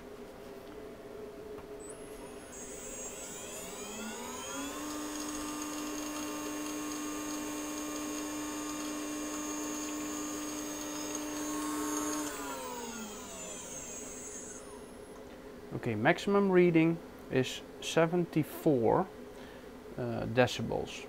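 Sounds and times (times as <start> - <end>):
spindle motor whine: 1.6 - 15.3.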